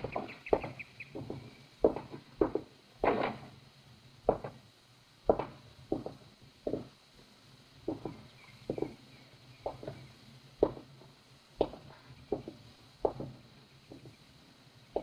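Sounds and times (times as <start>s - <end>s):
footsteps on wooden floor: 0.0s - 3.2s.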